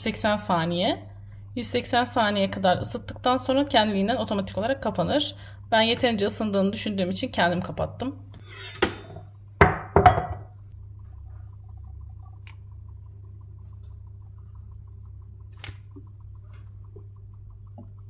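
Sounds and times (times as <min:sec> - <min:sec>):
low steady hum: 0:00.0 - 0:18.0
kitchenware clinking: 0:08.4 - 0:10.6.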